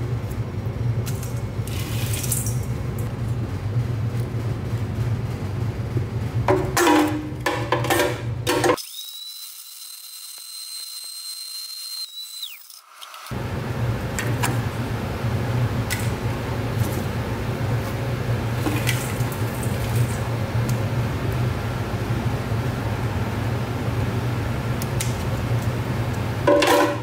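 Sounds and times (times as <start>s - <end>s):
blender motor whining: 8.8s - 13.4s.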